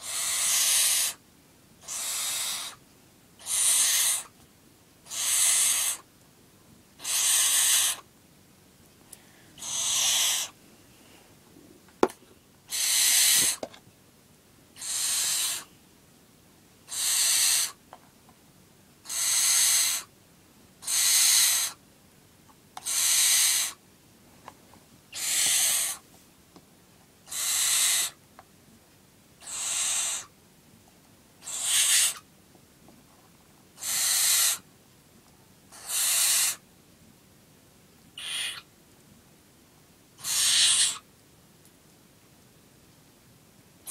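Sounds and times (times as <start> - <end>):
owl chick hissing calls: 0.0 - 1.2, 1.8 - 2.8, 3.4 - 4.4, 5.0 - 6.1, 7.0 - 8.1, 9.6 - 10.6, 12.7 - 13.6, 14.8 - 15.7, 16.8 - 17.8, 19.0 - 20.1, 20.8 - 21.8, 22.8 - 23.8, 25.1 - 26.1, 27.2 - 28.2, 29.4 - 30.4, 31.4 - 32.3, 33.8 - 34.7, 35.7 - 36.6, 38.1 - 38.7, 40.2 - 41.1.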